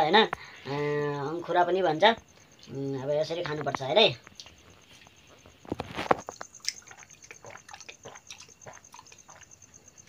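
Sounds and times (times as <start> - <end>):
person gulping water: 6.3 - 9.6.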